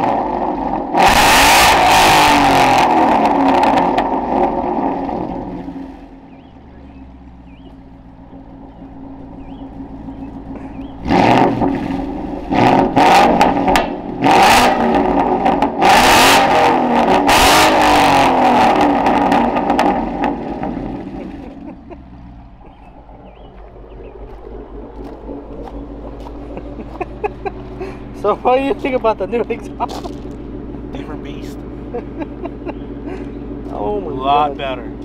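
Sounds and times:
car engine idling and revving: 0:00.0 - 0:35.0.

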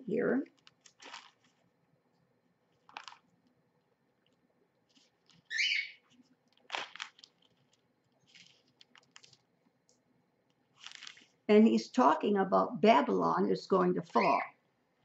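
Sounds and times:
book pages rustling: 0:00.5 - 0:01.7, 0:02.7 - 0:03.6, 0:04.2 - 0:09.5, 0:10.6 - 0:11.4
parrot chirping: 0:05.4 - 0:06.1, 0:14.1 - 0:14.6.

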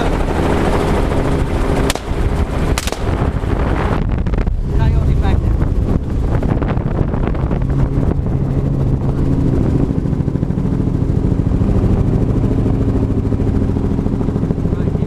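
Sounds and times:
helicopter engine drone: 0:00.0 - 0:03.9, 0:07.2 - 0:15.0
helicopter rotor chop: 0:00.0 - 0:03.9.

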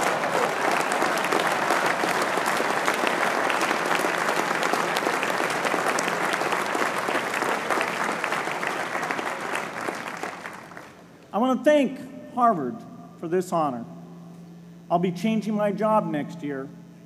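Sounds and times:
crowd applauding: 0:00.0 - 0:11.1.

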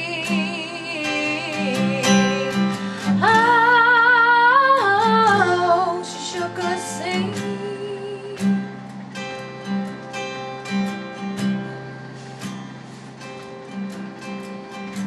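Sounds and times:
woman singing with vibrato: 0:00.0 - 0:08.6
strummed acoustic guitar: 0:00.0 - 0:15.0.

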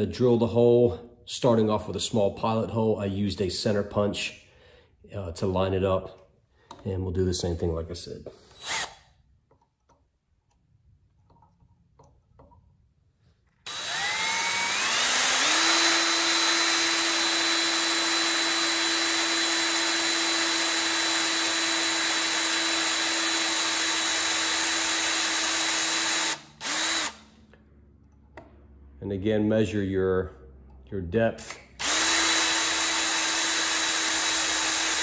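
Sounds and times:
cordless drill whining: 0:08.4 - 0:09.1, 0:13.6 - 0:27.3, 0:31.5 - 0:35.0.

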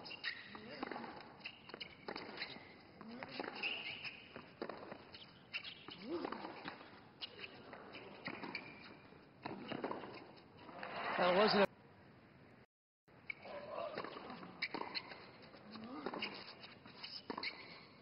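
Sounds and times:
shoe squeaks: 0:00.0 - 0:10.8, 0:13.2 - 0:18.0
racket striking tennis ball: 0:00.2 - 0:08.7, 0:13.4 - 0:15.2, 0:15.8 - 0:16.5.

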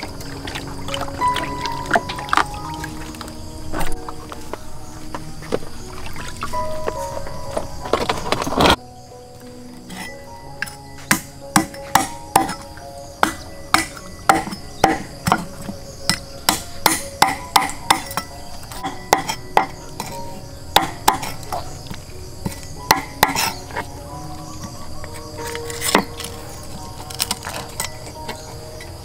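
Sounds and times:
cleaver chopping on wooden block: 0:11.0 - 0:12.6, 0:13.2 - 0:20.2, 0:20.8 - 0:21.4, 0:22.5 - 0:23.6.

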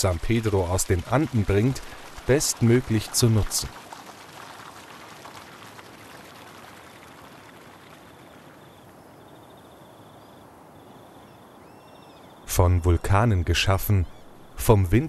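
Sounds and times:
stream water rushing: 0:00.0 - 0:09.1.

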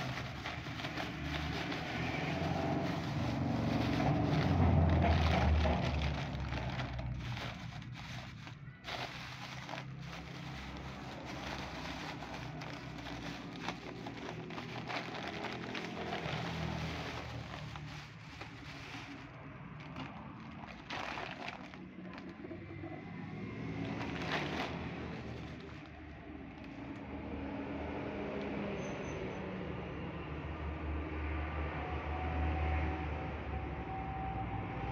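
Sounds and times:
plastic bags rustling and crinkling: 0:00.0 - 0:26.8.

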